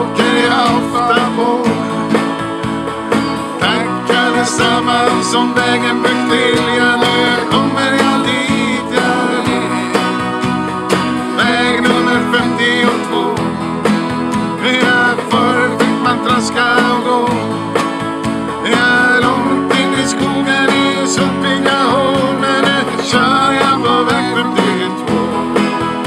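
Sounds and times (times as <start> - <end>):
men singing folk song: 0.0 - 2.4, 3.4 - 13.7, 14.4 - 17.7, 18.4 - 26.0
keyboard chords: 0.0 - 26.0
strummed acoustic guitar: 0.0 - 26.0.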